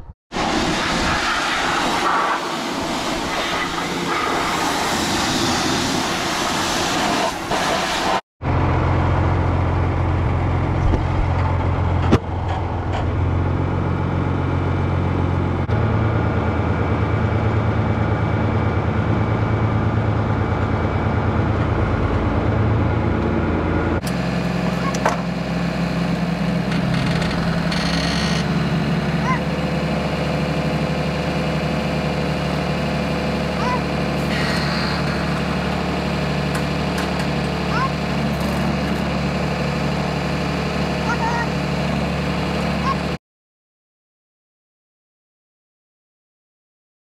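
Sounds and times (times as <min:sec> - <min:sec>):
engine idling: 0:08.4 - 0:43.2.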